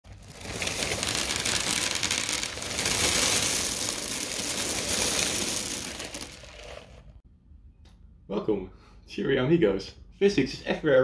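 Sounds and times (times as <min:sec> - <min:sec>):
cereal pouring onto paper: 0:00.1 - 0:07.1.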